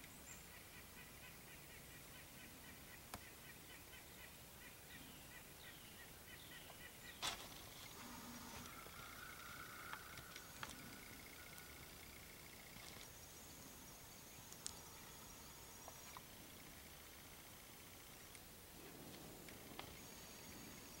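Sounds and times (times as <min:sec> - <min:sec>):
thin steady tone: 0:07.8 - 0:21.0.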